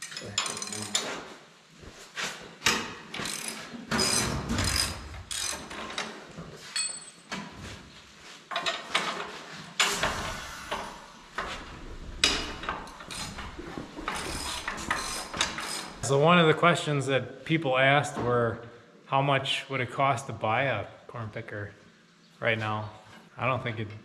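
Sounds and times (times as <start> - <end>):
steel parts clanking: 0.0 - 1.0, 9.8 - 16.0.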